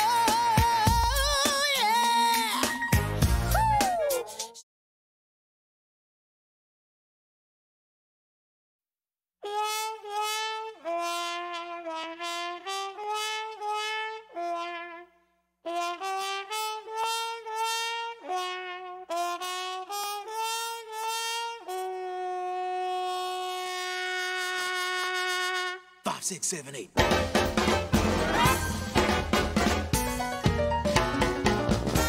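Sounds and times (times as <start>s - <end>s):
instrumental fanfare melody: 9.4s - 26.2s, 27.0s - 32.0s.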